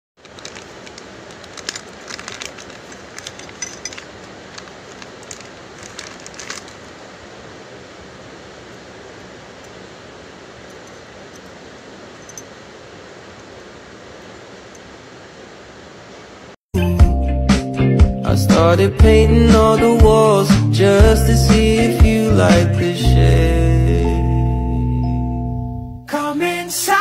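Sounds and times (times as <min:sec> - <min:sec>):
plastic bag crinkling: 0:00.2 - 0:07.0
steady low hiss: 0:00.2 - 0:16.6, 0:18.2 - 0:27.0.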